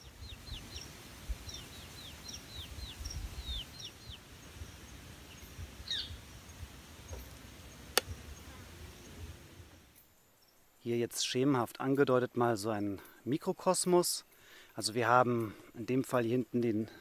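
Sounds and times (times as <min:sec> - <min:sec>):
bird chirping: 0:00.0 - 0:09.4
sharp click: 0:07.9 - 0:08.1.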